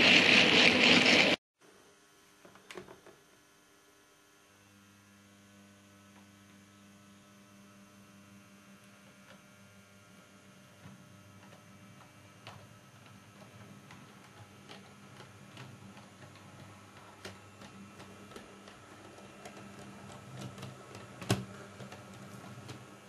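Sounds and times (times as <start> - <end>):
model train motor hum: 0.0 - 1.4.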